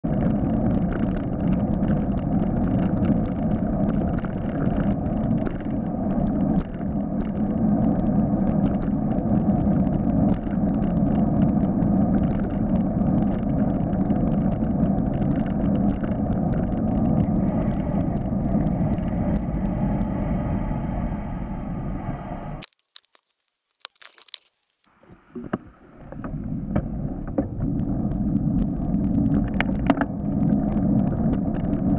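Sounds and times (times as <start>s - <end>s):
wind and road rush: 0.0s - 22.8s, 24.4s - 31.9s
bicycle clicks and rattles: 0.1s - 17.3s
motor traffic: 17.2s - 22.6s.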